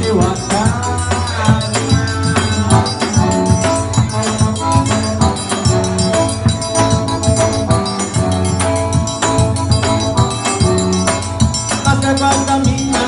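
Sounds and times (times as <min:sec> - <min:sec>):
accordion melody: 0:00.0 - 0:13.0
bass drum beat: 0:00.0 - 0:13.0
jingling percussion: 0:00.0 - 0:13.0.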